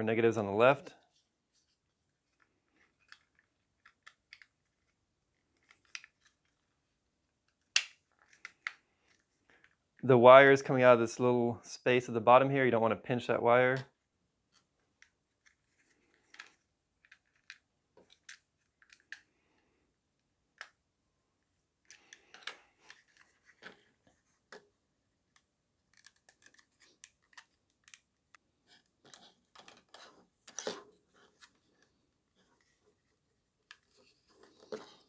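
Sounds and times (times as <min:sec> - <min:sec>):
plastic parts clicking together: 0:02.3 - 0:06.7, 0:07.4 - 0:09.8, 0:14.5 - 0:19.4, 0:21.8 - 0:23.9, 0:25.3 - 0:30.8.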